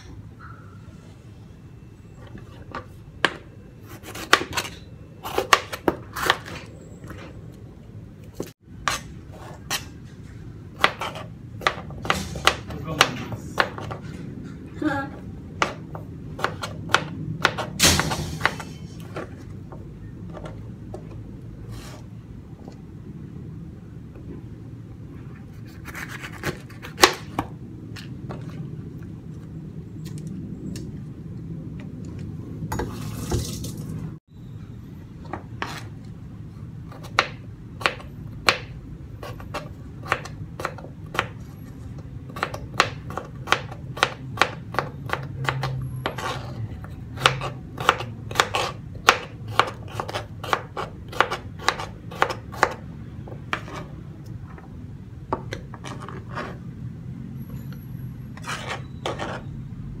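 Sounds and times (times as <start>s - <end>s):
knife chopping on cutting board: 10.8s - 14.0s, 16.4s - 19.3s, 42.3s - 46.5s, 47.2s - 52.8s.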